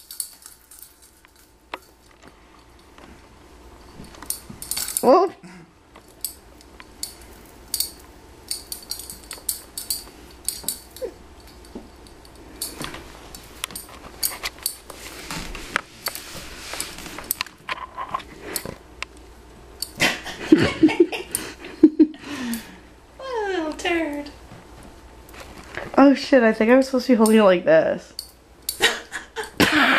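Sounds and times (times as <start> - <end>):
glass on beads clinking: 0.0 - 2.0
rustling: 6.0 - 18.8, 24.5 - 26.0.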